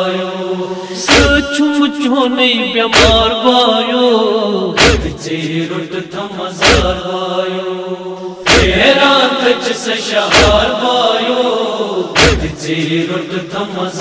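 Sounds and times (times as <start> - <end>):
men chanting a lament: 0.0 - 14.0
chest beating thuds: 1.1 - 1.4, 3.0 - 3.3, 4.8 - 5.2, 6.6 - 7.0, 8.5 - 8.8, 10.3 - 10.6, 12.2 - 12.6.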